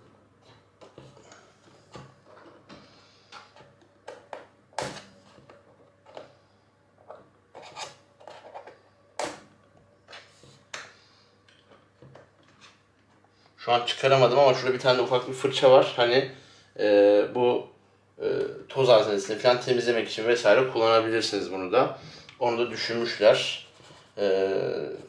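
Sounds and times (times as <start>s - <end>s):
plastic rubbing: 7.0s - 8.8s.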